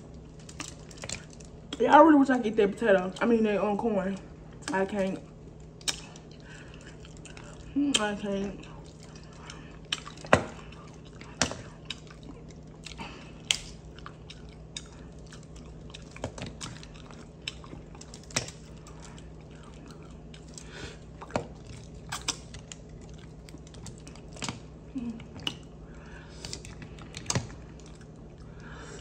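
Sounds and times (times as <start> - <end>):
wet chewing: 0.0 - 1.9, 2.7 - 29.0.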